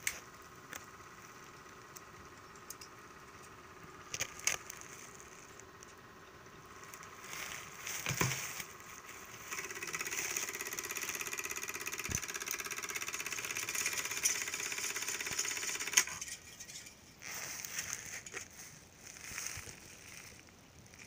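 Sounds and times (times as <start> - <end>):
film projector clattering: 0.0 - 16.8
handling knocks: 8.0 - 8.6.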